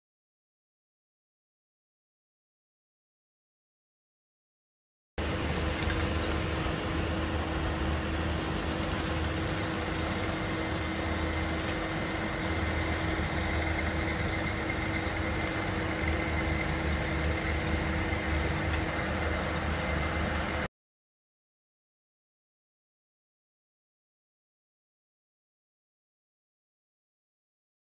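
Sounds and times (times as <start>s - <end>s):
constant hum: 5.2s - 20.7s
diesel engines rumbling: 5.2s - 20.7s
faint high whine: 5.2s - 20.7s.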